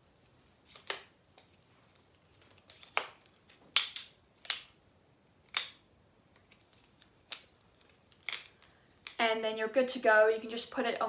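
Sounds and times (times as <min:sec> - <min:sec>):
cane sections clacking: 0:05.4 - 0:09.2.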